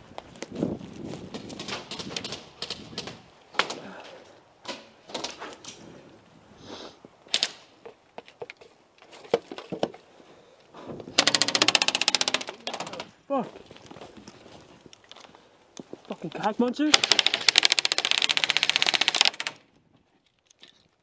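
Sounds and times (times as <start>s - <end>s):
airsoft gun full-auto burst: 11.2s - 12.5s, 16.9s - 19.6s.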